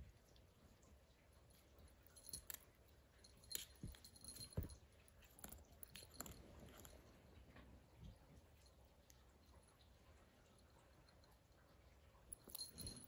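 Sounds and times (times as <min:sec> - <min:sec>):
kitten batting and biting ruler: 0:01.6 - 0:07.2.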